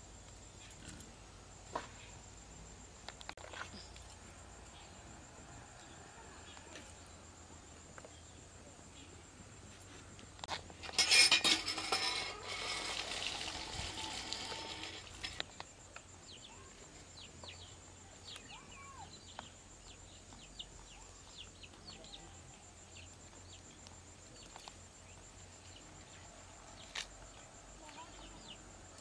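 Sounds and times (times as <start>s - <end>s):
birds chirping: 10.9s - 27.0s.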